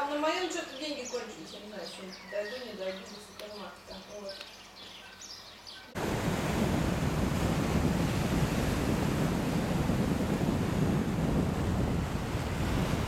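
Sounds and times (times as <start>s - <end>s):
bird chirping: 0.3s - 6.0s
wind buffeting microphone: 5.9s - 13.0s
waves breaking on rocks: 6.0s - 13.0s.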